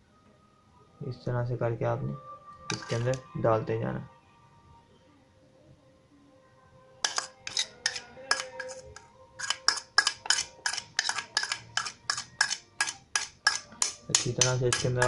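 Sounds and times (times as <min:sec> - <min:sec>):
birdseed clinking in steel bowl: 0:07.0 - 0:15.0.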